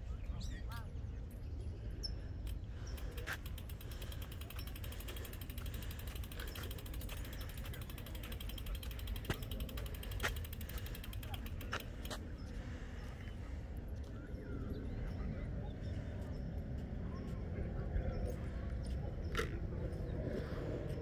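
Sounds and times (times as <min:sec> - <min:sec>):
steady low rumble: 0:00.0 - 0:21.0
rapid ratchet-like clicking: 0:02.5 - 0:12.2.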